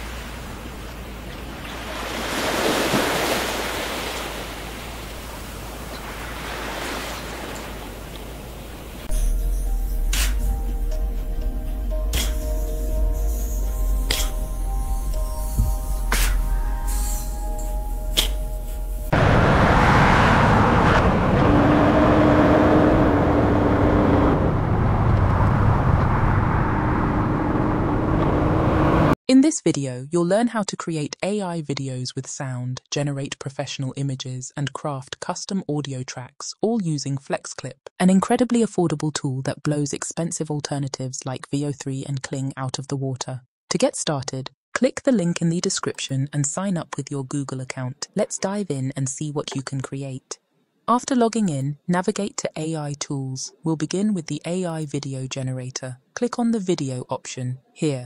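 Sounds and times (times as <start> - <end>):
waves breaking on beach: 0.0 - 9.1
sports car engine: 19.1 - 29.2.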